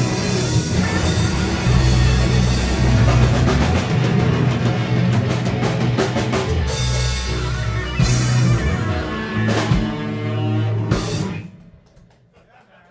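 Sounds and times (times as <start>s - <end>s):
live rock band playing: 0.0s - 11.8s.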